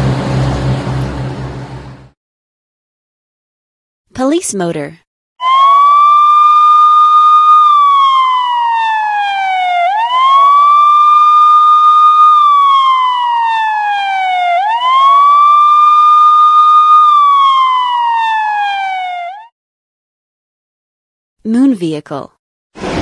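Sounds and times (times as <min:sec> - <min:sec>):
police siren wailing: 0:05.4 - 0:19.5.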